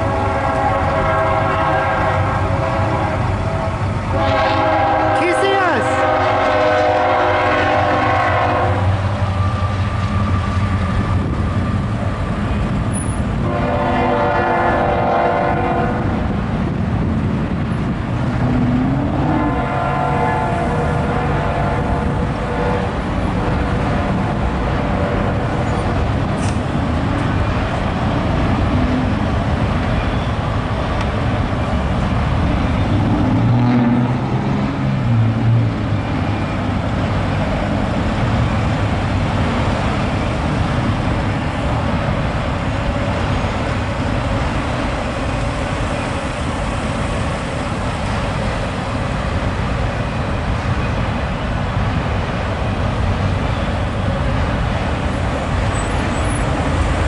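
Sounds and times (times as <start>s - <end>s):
freight train rolling past: 0.0s - 57.0s
road traffic noise: 0.0s - 57.0s
heavy engine hum: 6.9s - 57.0s.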